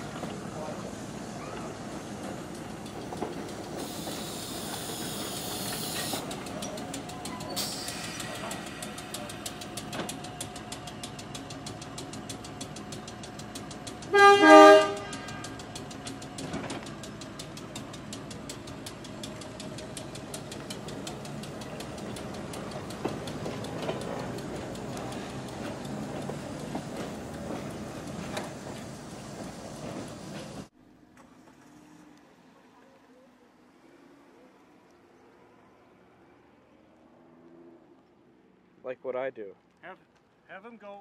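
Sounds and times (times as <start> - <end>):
wheels clicking over rail joints: 0.0 - 32.0
train horn toots: 14.1 - 15.6.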